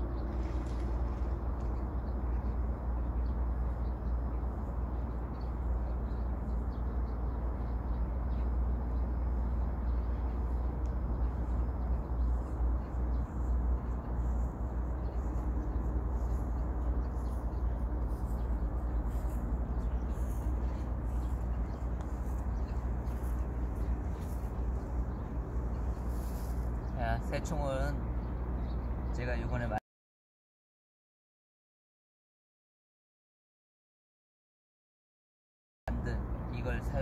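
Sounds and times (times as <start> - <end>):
low outdoor rumble: 0.0 - 29.8, 35.9 - 37.0
footsteps on asphalt: 11.8 - 26.9.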